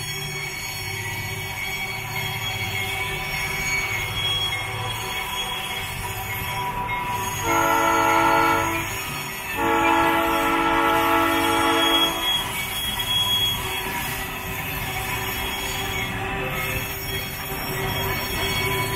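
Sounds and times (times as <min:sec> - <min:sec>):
locomotive air horn blasts: 0:07.4 - 0:08.9, 0:09.6 - 0:12.2.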